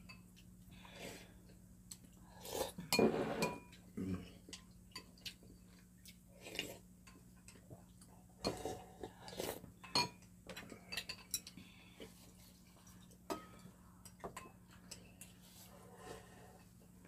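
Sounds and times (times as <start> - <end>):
spoon and chopsticks clinking on bowls: 9.8 - 11.6.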